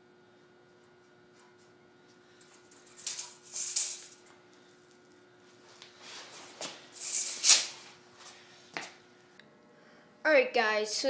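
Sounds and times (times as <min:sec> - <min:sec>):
scraping on concrete floor: 0:02.6 - 0:04.3.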